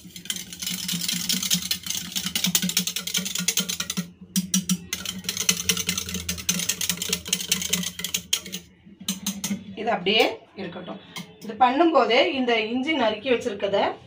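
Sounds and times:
whisk clicking against metal bowl: 0:00.0 - 0:09.7.

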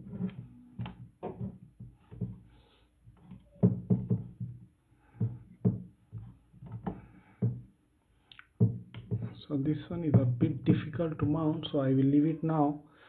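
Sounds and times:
microphone handling knocks: 0:03.2 - 0:07.7, 0:08.6 - 0:11.7.

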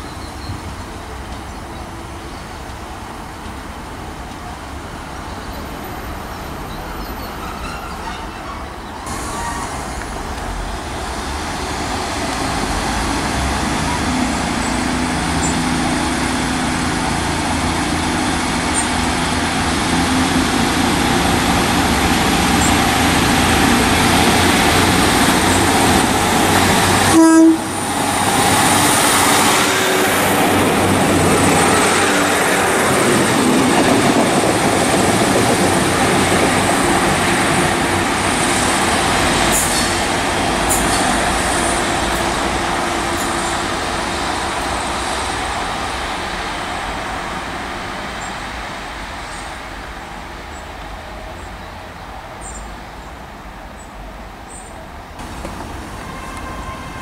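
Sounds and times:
diesel train running on rails: 0:00.0 - 0:57.0
passing diesel train rumble: 0:00.0 - 0:57.0
train horn toot: 0:27.0 - 0:27.8, 0:55.3 - 0:57.0.

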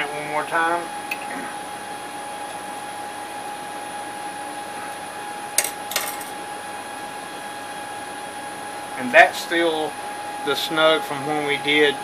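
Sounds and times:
machine hum with high whine: 0:00.0 - 0:12.0.

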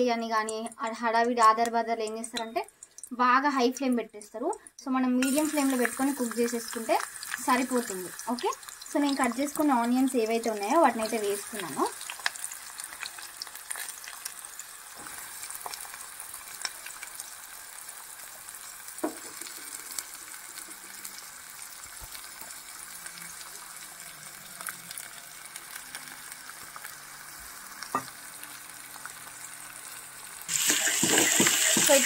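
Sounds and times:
onions sizzling in oil: 0:05.2 - 0:32.0
ladle stirring onions: 0:30.5 - 0:32.0.

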